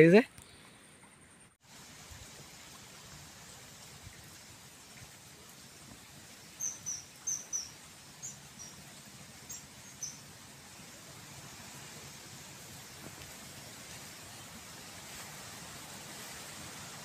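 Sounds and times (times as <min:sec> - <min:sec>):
faint outdoor hiss: 0:00.0 - 0:17.0
bird chirping: 0:06.5 - 0:08.8, 0:09.5 - 0:10.2.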